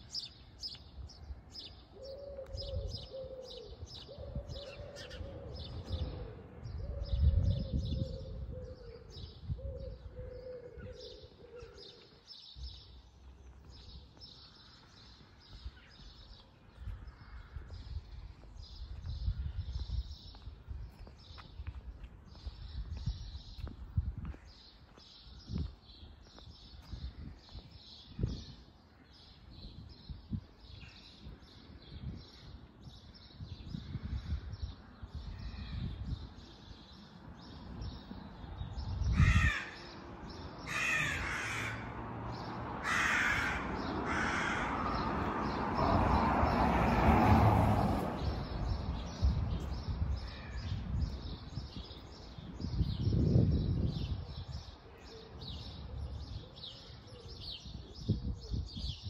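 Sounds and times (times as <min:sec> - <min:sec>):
walking footsteps: 0:12.0 - 0:28.4
crows cawing: 0:39.1 - 0:40.0, 0:40.6 - 0:42.0, 0:42.8 - 0:45.1.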